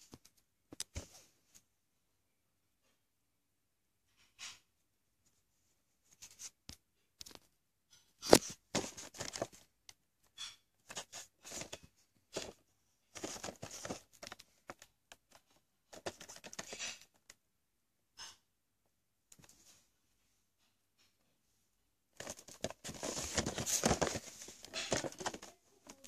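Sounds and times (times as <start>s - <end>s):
cardboard packaging scraping and crinkling: 8.4s - 9.6s, 13.2s - 14.8s, 16.0s - 17.1s, 22.2s - 26.0s.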